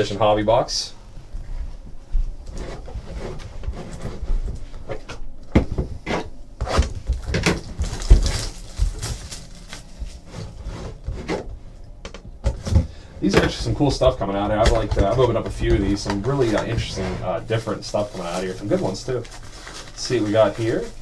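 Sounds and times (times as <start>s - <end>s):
cardboard rubbing and scraping: 2.5s - 5.1s, 5.8s - 11.6s, 13.6s - 21.0s.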